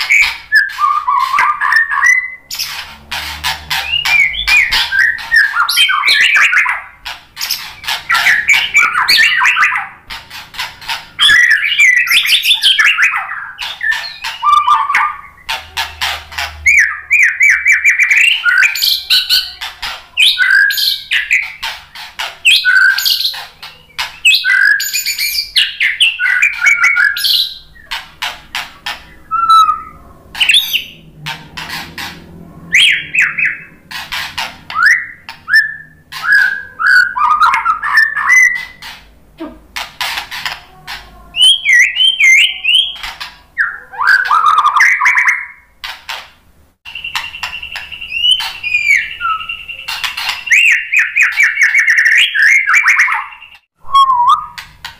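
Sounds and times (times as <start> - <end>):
bird singing whistled song: 0.0 - 2.7, 3.7 - 9.9, 11.2 - 15.5, 16.6 - 21.7, 22.4 - 28.0, 29.1 - 31.0, 32.7 - 33.8, 34.7 - 38.8, 41.4 - 45.6, 46.9 - 54.6.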